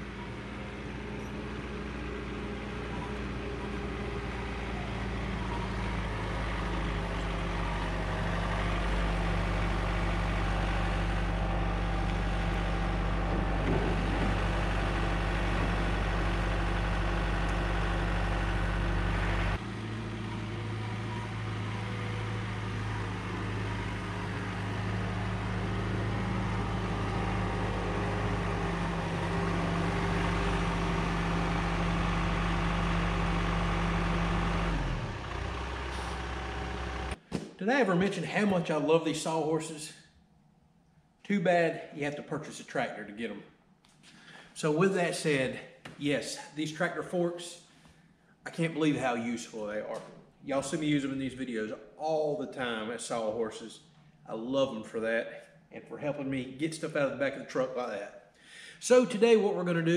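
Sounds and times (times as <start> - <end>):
tractor diesel engine running: 0.0 - 37.2.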